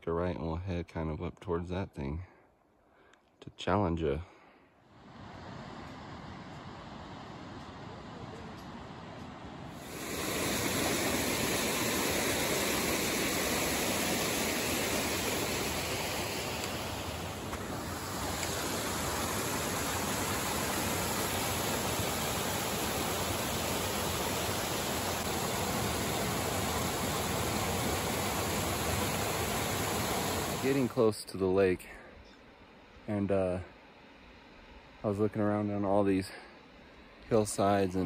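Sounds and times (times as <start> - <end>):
creek rushing over rocks: 9.7 - 31.0.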